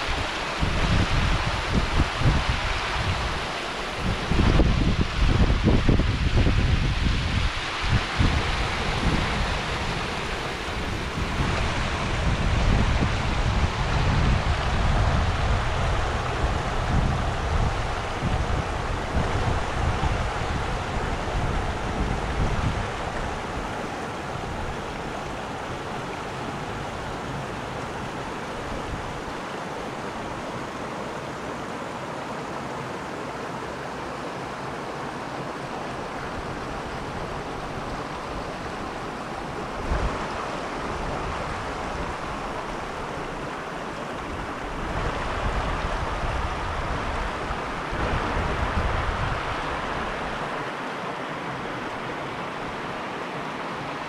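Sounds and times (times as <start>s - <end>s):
wind buffeting microphone: 0.0s - 30.8s, 35.6s - 50.6s
water rushing over rocks: 0.0s - 54.0s.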